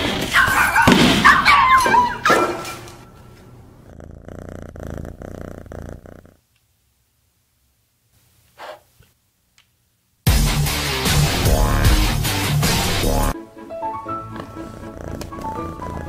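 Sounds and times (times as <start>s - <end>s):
cat purring: 3.5s - 6.5s, 11.2s - 13.4s, 14.3s - 16.0s.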